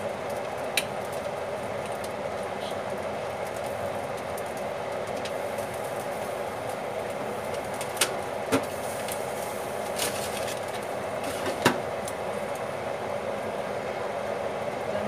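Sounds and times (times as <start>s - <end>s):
steady hum: 0.0s - 15.0s
oven glass door shutting: 11.2s - 11.9s.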